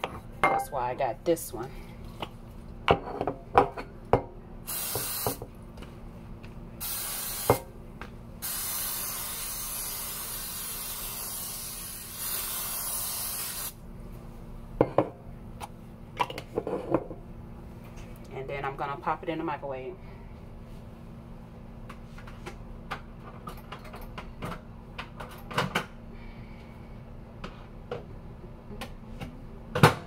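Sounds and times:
aerosol spray hissing: 4.7s - 5.4s, 6.8s - 7.6s, 8.4s - 13.8s.

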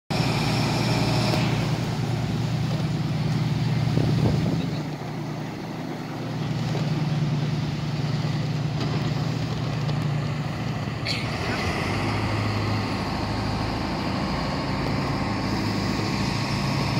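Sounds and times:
boat engine humming: 0.1s - 16.9s.

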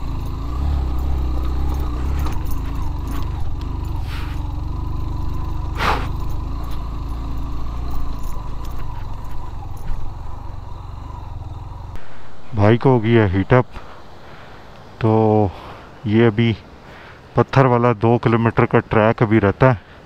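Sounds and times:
light clicks and rattles: 0.0s - 10.6s
motorcycle engine running: 0.0s - 14.2s.

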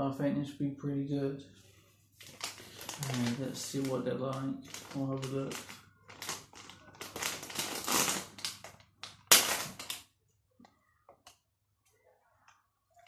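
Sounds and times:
plastic packet crinkling: 2.2s - 10.1s.

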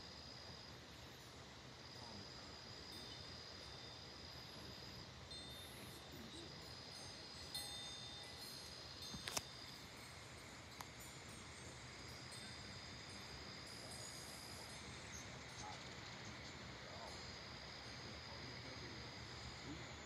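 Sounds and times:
low hiss: 0.0s - 20.0s
wind chime ringing: 5.2s - 15.6s.

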